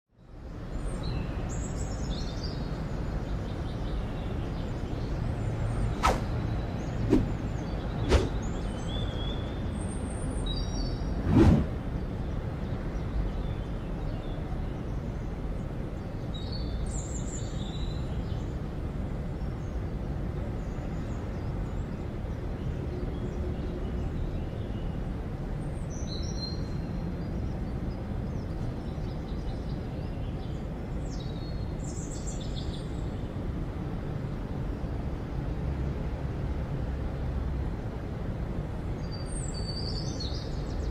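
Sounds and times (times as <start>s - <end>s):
birds chirping: 1.0s - 15.3s.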